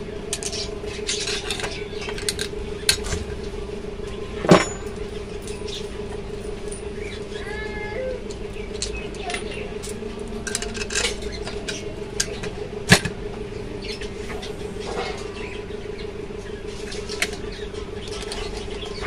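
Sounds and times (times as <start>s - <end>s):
steady hum: 0.0s - 19.0s
sharp metal clank: 4.4s - 5.2s
metal clicks and scrapes: 10.4s - 13.1s.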